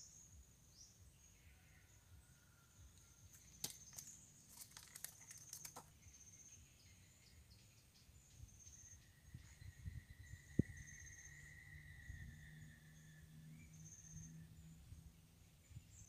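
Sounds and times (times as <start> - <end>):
high insect whine: 8.6 - 14.8.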